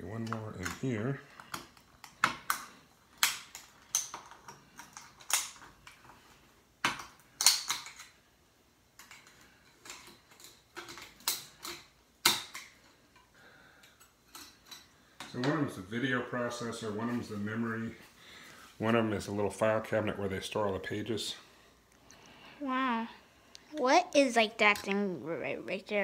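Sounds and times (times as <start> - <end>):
metal tool clicking and snapping: 6.8 - 8.1.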